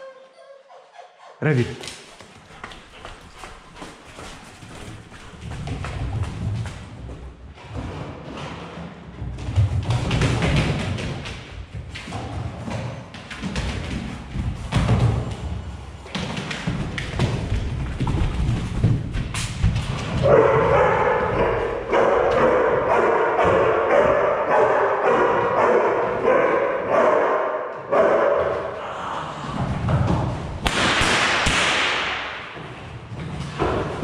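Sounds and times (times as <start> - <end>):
dog barking and growling: 20.1 - 28.8.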